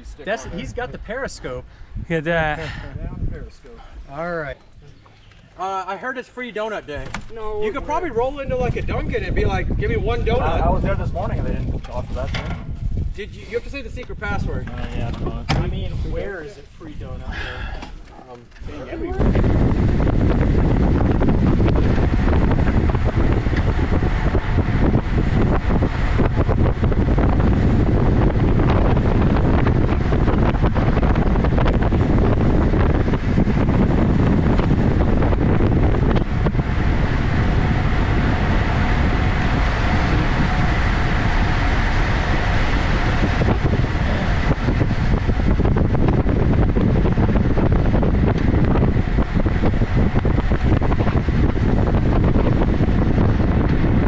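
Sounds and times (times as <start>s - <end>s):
wind buffeting microphone: 0.0s - 5.8s, 6.7s - 54.0s.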